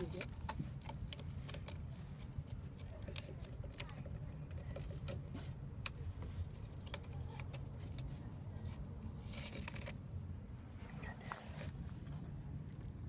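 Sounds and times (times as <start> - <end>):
scratching on sisal post: 0.0 - 10.2
steady low hum: 0.0 - 13.0.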